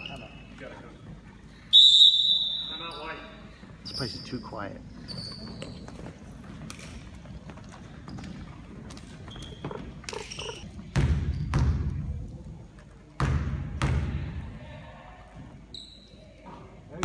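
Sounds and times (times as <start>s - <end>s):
basketball bouncing on wooden floor: 8.1s - 12.2s, 13.2s - 14.2s.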